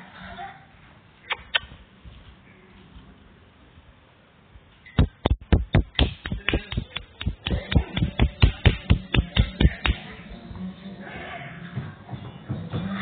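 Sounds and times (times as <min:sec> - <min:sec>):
rapid sharp taps and knocks: 0:05.0 - 0:10.0.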